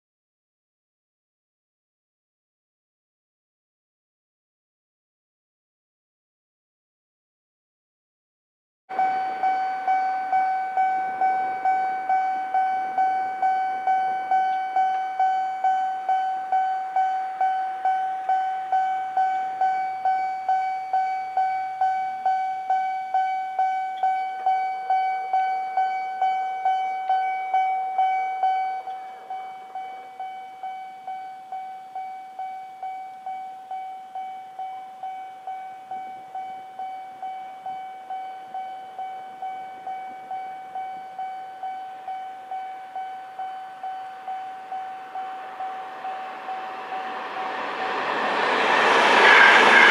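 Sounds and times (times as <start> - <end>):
level crossing warning bell: 8.9 - 49.9.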